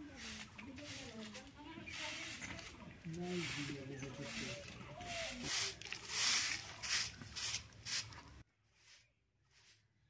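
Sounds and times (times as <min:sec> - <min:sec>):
broom sweeping earth: 0:00.0 - 0:10.0.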